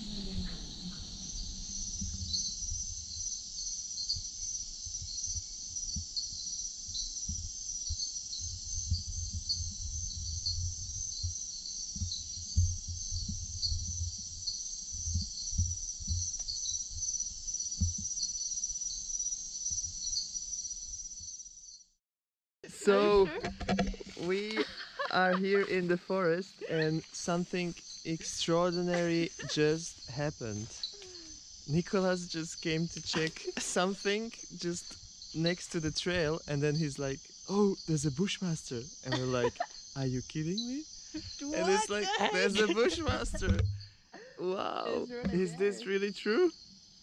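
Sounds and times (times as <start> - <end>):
insect chirps: 0.0 - 22.0, 22.8 - 47.0
high-pitched insect buzzing: 25.2 - 43.8.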